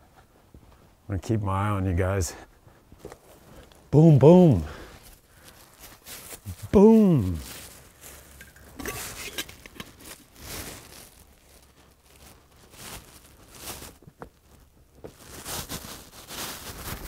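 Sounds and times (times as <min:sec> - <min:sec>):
footsteps in dry leaves: 0:04.3 - 0:17.0.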